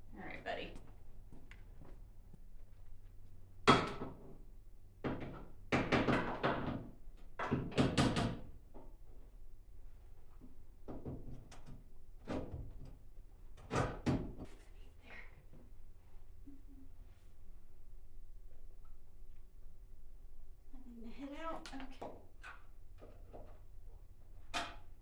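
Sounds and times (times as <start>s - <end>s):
knocks and clatters of objects: 5.0s - 8.9s, 21.8s - 25.0s.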